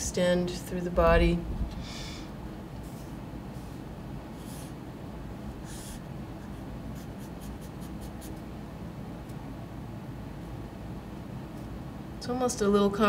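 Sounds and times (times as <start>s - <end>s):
low room rumble: 0.0s - 13.0s
pen scratching on paper: 5.6s - 8.4s.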